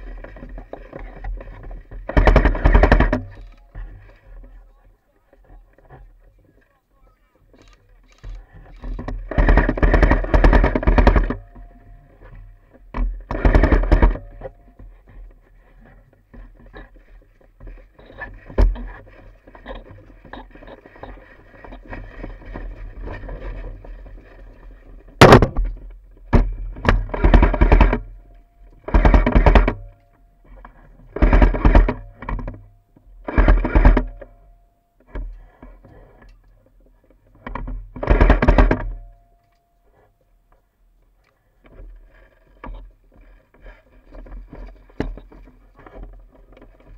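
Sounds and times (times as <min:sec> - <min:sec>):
airsoft rifle full-auto bursts: 0:09.3 - 0:11.4, 0:13.3 - 0:14.3.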